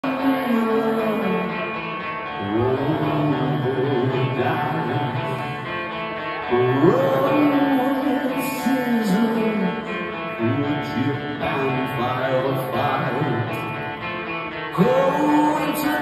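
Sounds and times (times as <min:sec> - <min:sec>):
electric guitar riff: 0:00.0 - 0:16.0.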